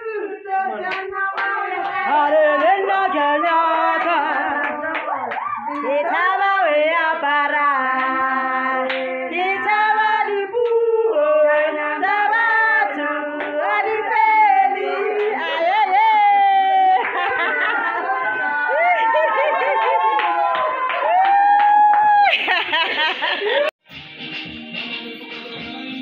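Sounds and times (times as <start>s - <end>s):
women singing together: 0.0s - 19.8s.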